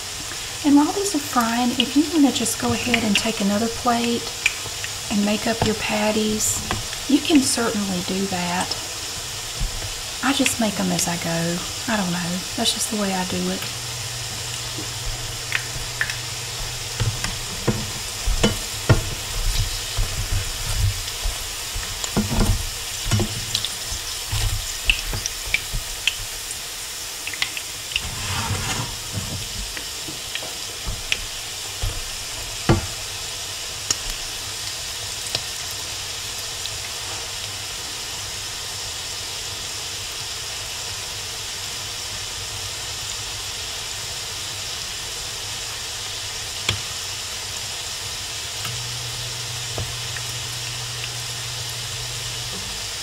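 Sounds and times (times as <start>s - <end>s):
patties sizzling in oil: 0.0s - 53.0s
spatulas scraping pan: 12.7s - 26.4s, 27.9s - 33.2s.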